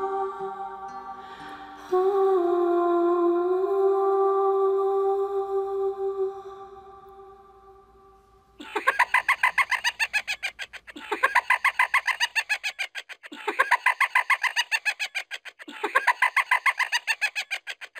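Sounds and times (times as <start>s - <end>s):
cackling cartoon laugh: 8.6s - 17.9s.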